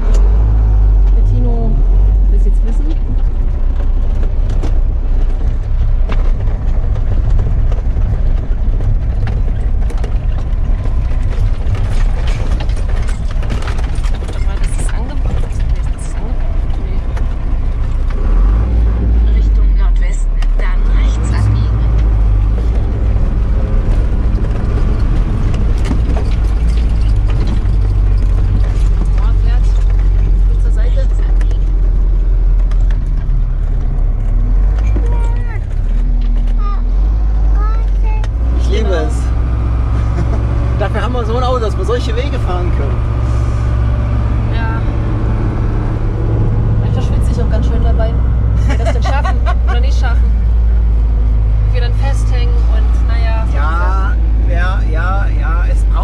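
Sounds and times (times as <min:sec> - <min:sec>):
diesel engine low rumble: 0:00.0 - 0:56.0
body knocks and rattles: 0:02.5 - 0:19.2, 0:20.6 - 0:43.2.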